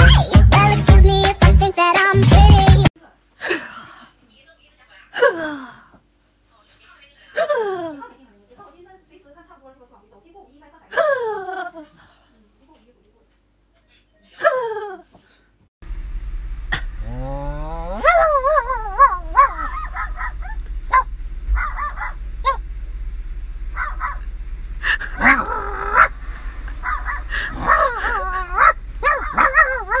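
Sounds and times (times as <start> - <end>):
dog howling and whining: 17.1 - 22.6, 25.1 - 30.0
dog yowls and yips: 18.0 - 22.6, 26.8 - 30.0.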